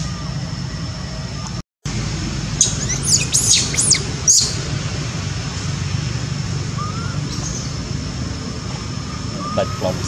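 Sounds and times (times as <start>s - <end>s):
high-pitched chirping calls: 2.6s - 4.7s, 6.7s - 8.0s, 8.9s - 10.0s.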